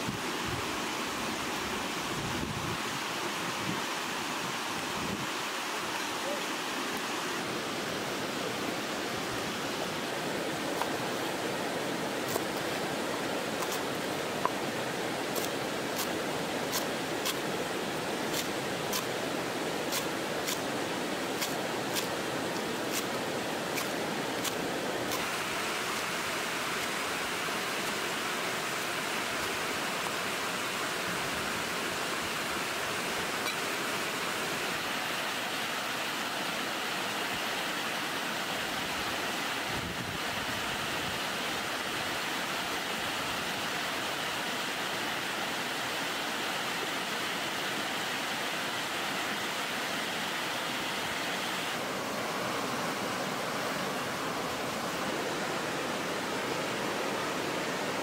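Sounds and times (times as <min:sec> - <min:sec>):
stream and waterfall rushing: 0:00.0 - 0:58.0.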